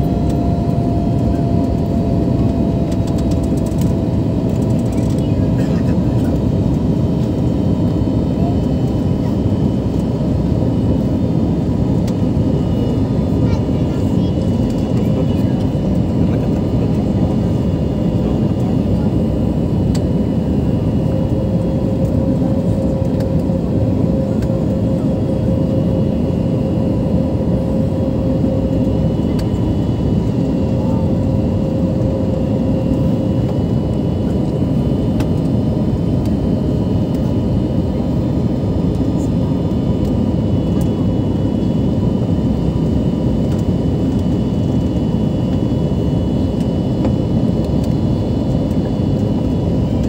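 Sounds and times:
jet engines roaring: 0.0 - 50.0.

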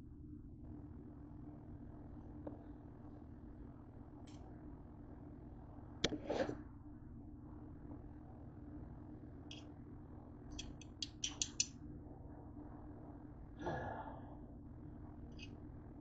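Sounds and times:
faint steady hum: 0.0 - 16.0
knife clicking on cutting board: 10.6 - 11.7.

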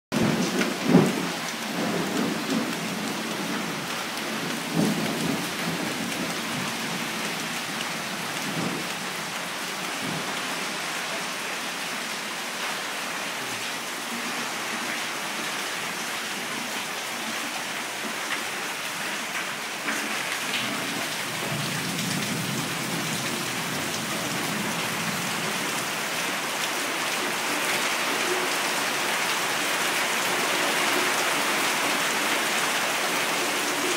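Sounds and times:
heavy rain pouring: 0.1 - 33.9
low thunder rumbles: 0.2 - 7.6, 8.2 - 8.9.

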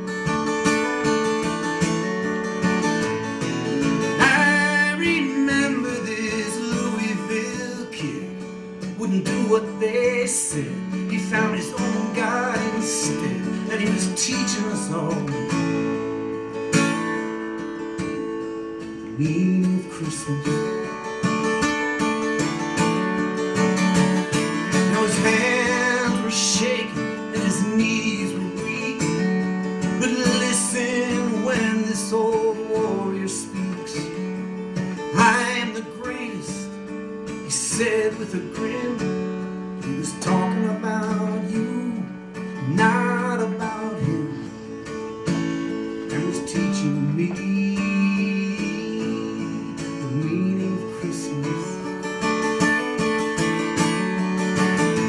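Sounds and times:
strummed acoustic guitar: 0.0 - 55.0
man singing: 3.8 - 16.0, 18.7 - 21.1, 24.4 - 53.2.

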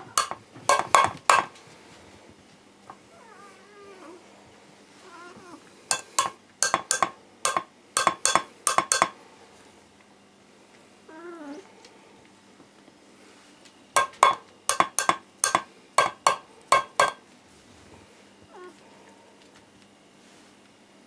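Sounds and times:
metal spoon tapping on tin: 0.0 - 1.5, 5.9 - 9.2, 14.0 - 17.2
cat meowing: 5.0 - 5.6, 18.5 - 18.8.

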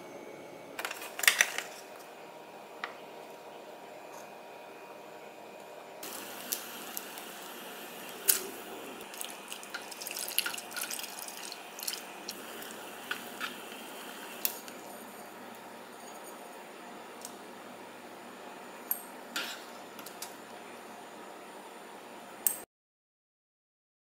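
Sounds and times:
steady hiss: 6.0 - 15.7.

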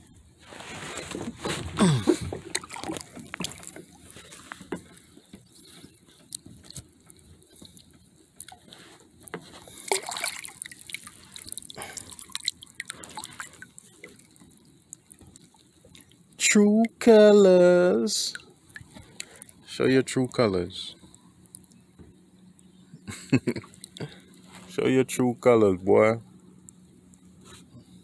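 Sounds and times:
water splashing and dripping: 2.3 - 17.0, 18.3 - 19.6.

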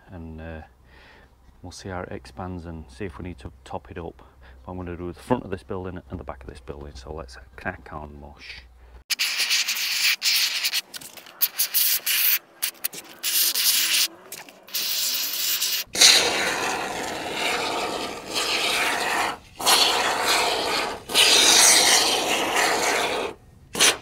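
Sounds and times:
expanding foam hissing from can: 9.1 - 24.0.

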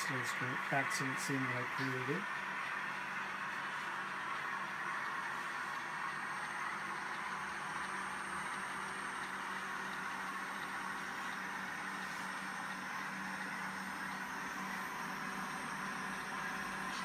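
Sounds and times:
steady hiss: 0.0 - 9.0.

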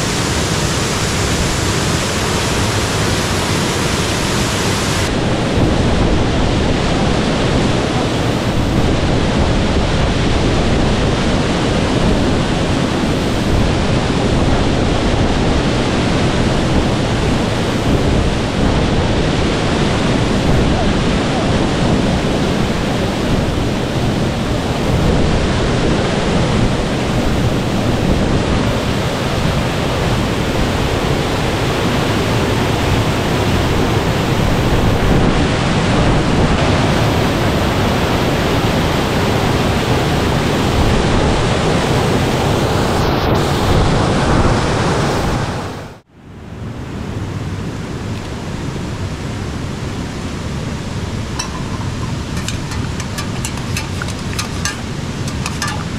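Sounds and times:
rushing creek water: 0.0 - 5.2, 51.4 - 55.9.

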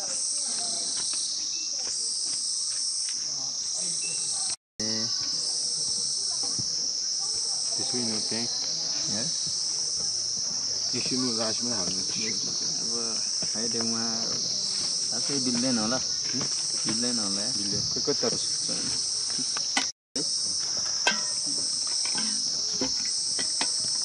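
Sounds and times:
high-pitched insect chorus: 0.0 - 24.0
quiet voices talking: 3.2 - 19.8.

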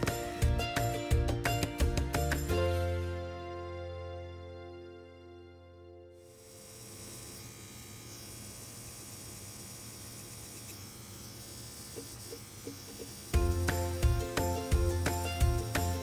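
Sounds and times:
loud music: 0.0 - 5.2, 13.4 - 16.0
tattoo machine buzzing: 6.2 - 16.0.

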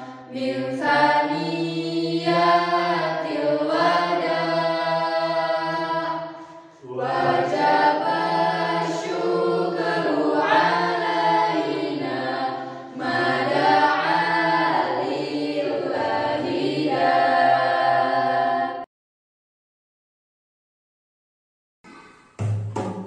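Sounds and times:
children singing a cappella: 0.0 - 18.9.

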